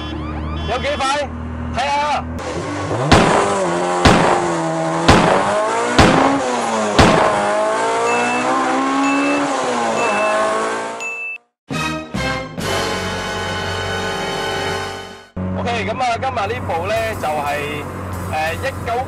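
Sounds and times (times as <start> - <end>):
car engine revving hard: 2.4 - 11.0
short high beeps: 8.1 - 11.5.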